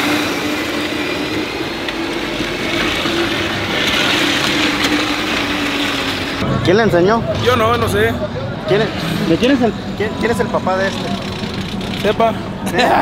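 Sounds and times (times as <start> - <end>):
toy truck motor humming: 0.0 - 6.4.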